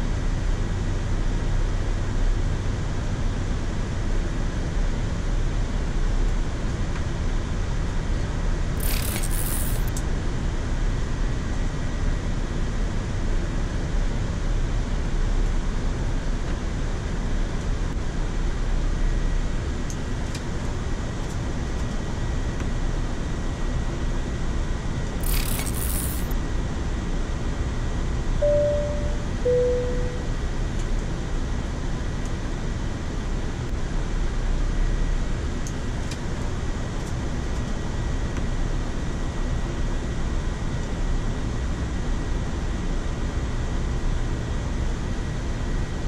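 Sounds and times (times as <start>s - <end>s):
cockpit airflow and air conditioning: 0.0s - 46.0s
two-note chime: 28.4s - 30.4s.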